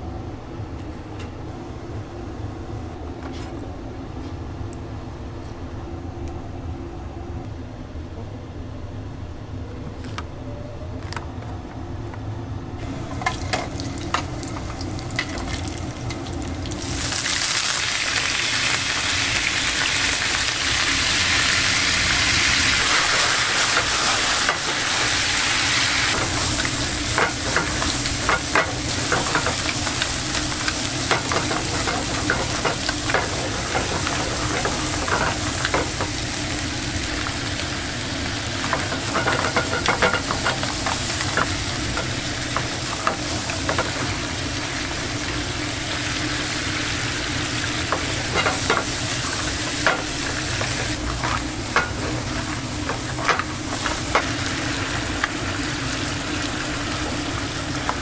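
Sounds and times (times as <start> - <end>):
seafood sizzling in a pan: 13.3 - 58.0.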